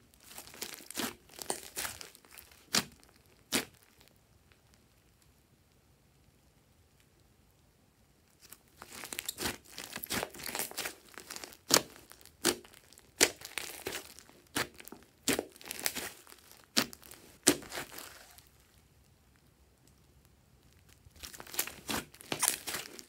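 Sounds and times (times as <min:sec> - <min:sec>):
slime crackling and squelching: 0:00.1 - 0:04.2, 0:08.4 - 0:19.1, 0:20.6 - 0:23.0.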